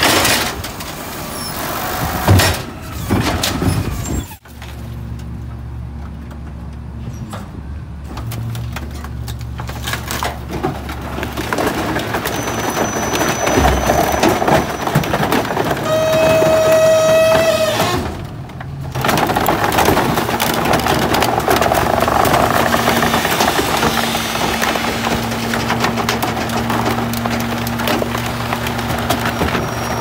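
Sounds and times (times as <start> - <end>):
steady squeal: 12.1 - 18.1, 29.2 - 30.0.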